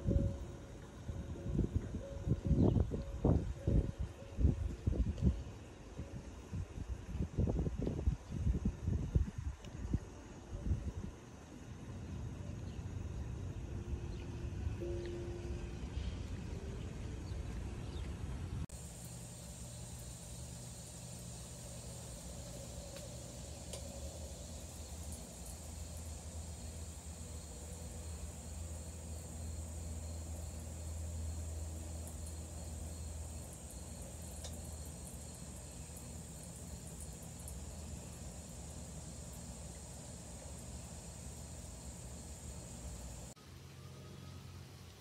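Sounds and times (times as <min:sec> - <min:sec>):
low steady hum: 0:00.0 - 0:45.0
high insect buzz: 0:18.7 - 0:43.4.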